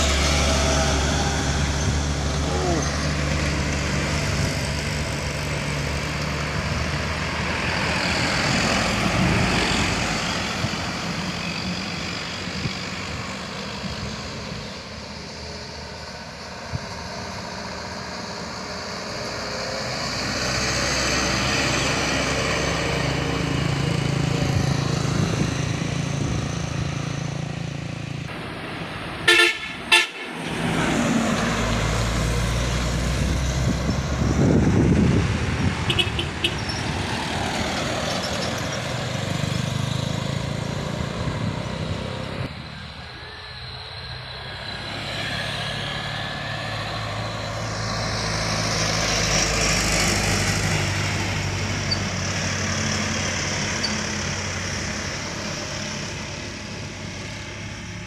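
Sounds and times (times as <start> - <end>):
trucks and motorcycles passing: 0.0 - 58.0
vehicle horn toots: 29.3 - 30.3, 35.9 - 36.6.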